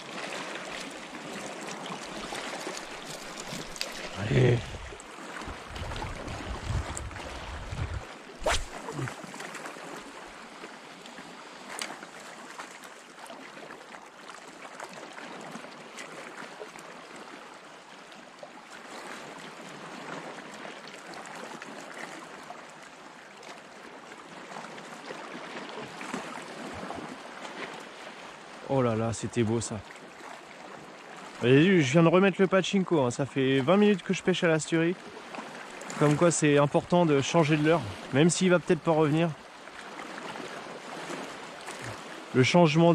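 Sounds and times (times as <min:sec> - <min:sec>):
sea lapping against rocks: 0:00.0 - 0:10.4, 0:39.7 - 0:42.3.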